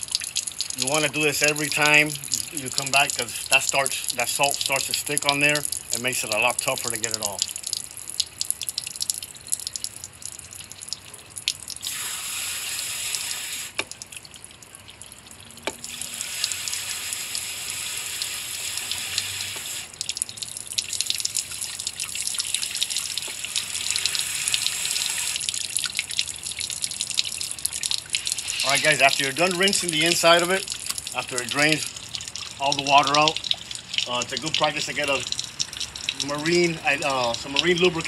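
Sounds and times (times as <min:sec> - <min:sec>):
water dripping: 0:00.0 - 0:38.0
hose nozzle spray: 0:11.8 - 0:13.8, 0:16.0 - 0:20.0, 0:28.1 - 0:29.6.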